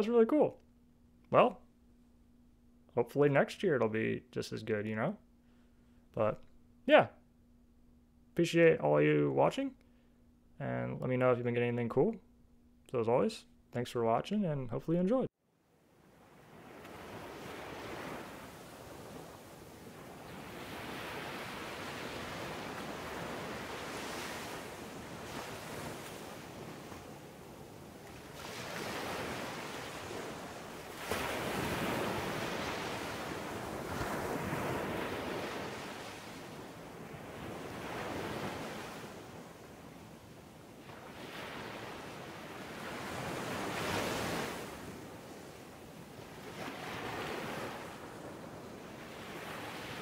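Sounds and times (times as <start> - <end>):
ocean waves breaking on beach: 15.8 - 50.0.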